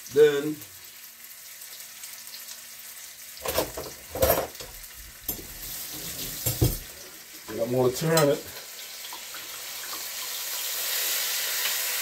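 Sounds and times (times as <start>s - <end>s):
meat sizzling in a frying pan: 0.0s - 12.0s
utensil knocking and scraping pan: 5.3s - 6.9s.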